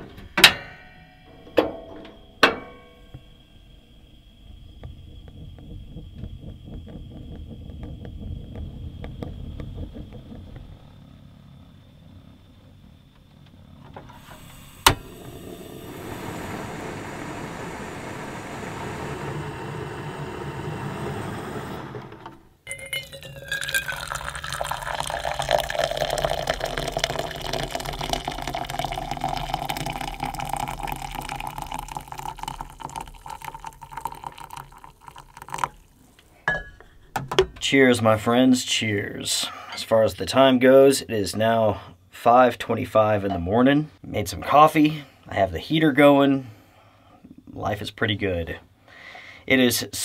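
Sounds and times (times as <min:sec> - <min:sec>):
liquid running and filling: 0:14.2 - 0:36.3.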